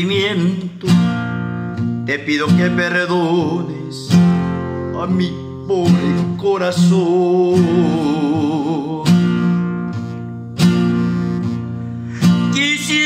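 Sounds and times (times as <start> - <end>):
acoustic guitar strumming chords: 0.0 - 13.0.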